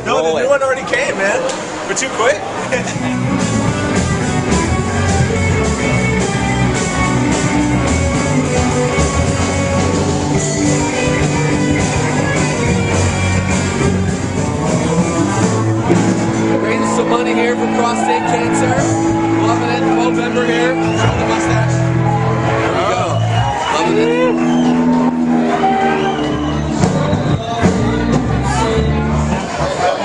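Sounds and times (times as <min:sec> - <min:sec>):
keyboard: 0:01.5 - 0:30.0
live rock band: 0:02.4 - 0:30.0
electric guitar: 0:02.5 - 0:30.0.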